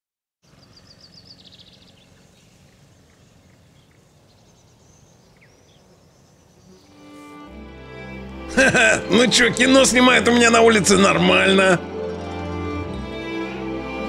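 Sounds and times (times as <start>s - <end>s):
low steady hum: 0.4s - 10.3s
birds chirping: 0.4s - 14.0s.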